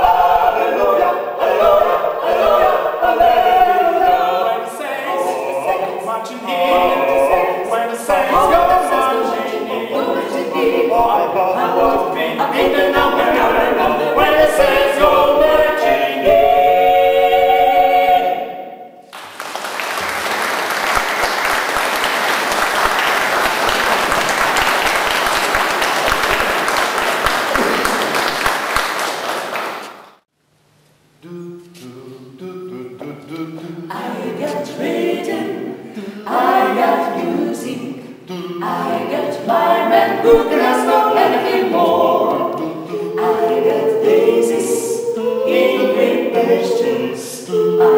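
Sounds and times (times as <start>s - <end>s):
a cappella group singing: 0.0s - 19.0s, 31.2s - 47.9s
audience applause: 19.1s - 30.2s.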